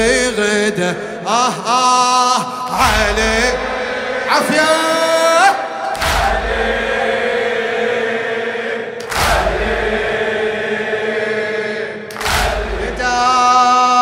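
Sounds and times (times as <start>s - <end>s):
men's voices chanting: 2.5s - 14.0s
mourners slapping chests in unison: 5.8s - 7.1s, 9.0s - 10.2s, 12.1s - 13.0s.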